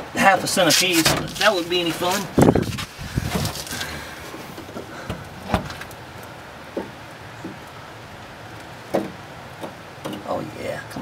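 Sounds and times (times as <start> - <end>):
wind noise on microphone: 1.1 - 4.2.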